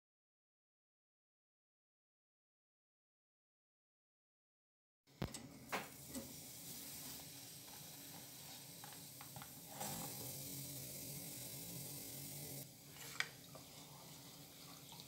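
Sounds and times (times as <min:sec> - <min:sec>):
faint hiss: 0:05.2 - 0:15.0.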